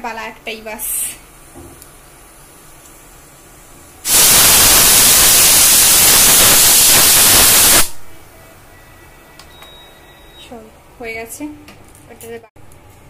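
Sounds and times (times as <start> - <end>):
pressure cooker whistling: 4.1 - 8.0.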